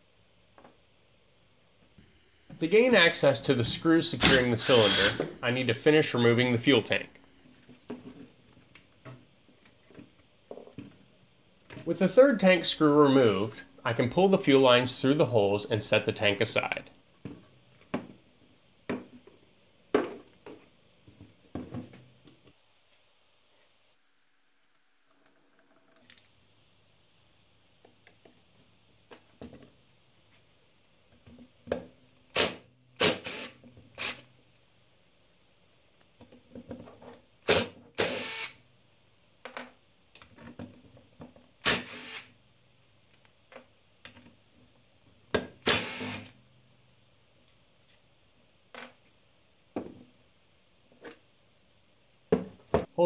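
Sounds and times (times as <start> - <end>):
cordless drill spinning: 4.2 - 5.3, 32.4 - 34.2, 37.5 - 38.6, 41.6 - 42.3, 45.6 - 46.3.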